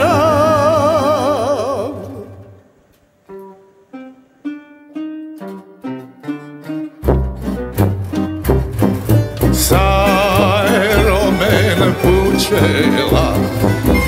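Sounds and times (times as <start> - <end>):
plucked-string melody: 0.0 - 14.0
band with bass and drums: 7.1 - 14.0.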